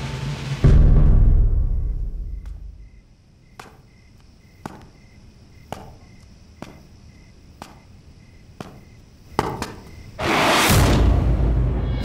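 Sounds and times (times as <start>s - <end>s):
crickets chirping: 1.2s - 10.6s.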